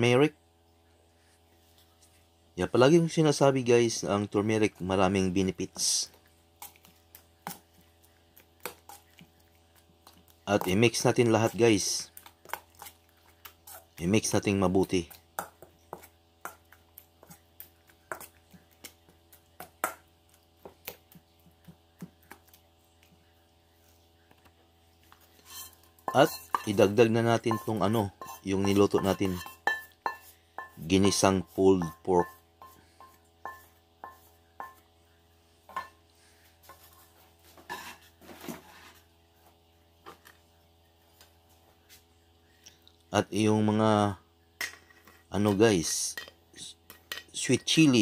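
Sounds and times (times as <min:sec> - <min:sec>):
spoon stirring wet mixture in bowl: 0:03.9 - 0:42.0, 0:44.6 - 0:48.0
spoon scraping metal bowl: 0:10.0 - 0:14.0, 0:25.2 - 0:34.8
spoon clinking on metal bowl: 0:25.4 - 0:30.9.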